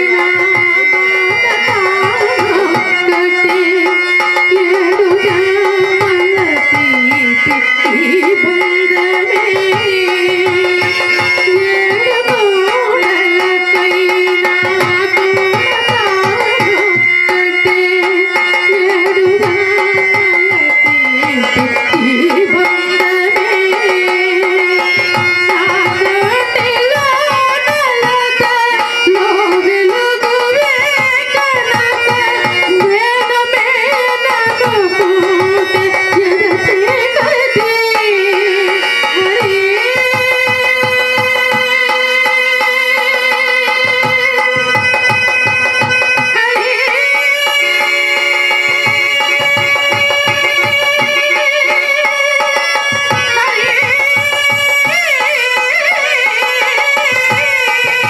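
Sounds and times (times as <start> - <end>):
woman singing: 0.0 - 44.9, 46.2 - 58.0
harmonium: 0.0 - 58.0
hand drum rhythm: 18.9 - 22.7, 43.8 - 46.4, 48.6 - 55.0.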